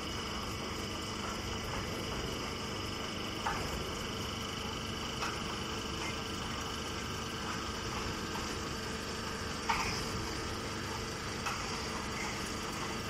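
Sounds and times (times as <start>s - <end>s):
baling machinery humming: 0.0s - 13.0s.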